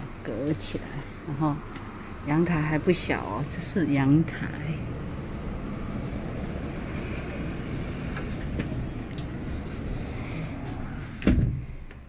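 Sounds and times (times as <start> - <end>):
city road traffic: 0.0 - 12.0
sliding glass door thudding shut: 11.2 - 11.7.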